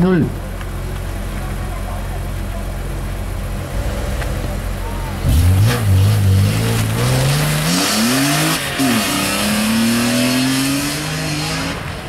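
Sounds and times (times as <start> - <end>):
car engine revving hard: 5.2 - 12.0.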